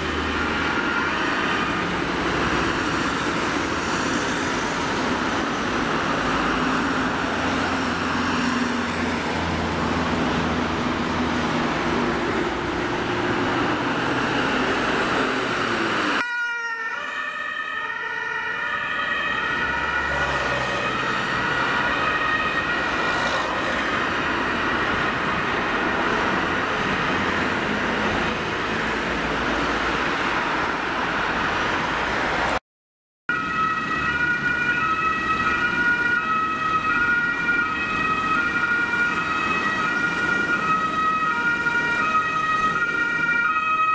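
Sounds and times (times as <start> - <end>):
ambulance siren: 0.0 - 28.2, 33.3 - 43.9
emergency vehicle engines passing: 0.0 - 32.6, 33.3 - 43.9
road traffic: 0.0 - 32.6, 33.3 - 43.9.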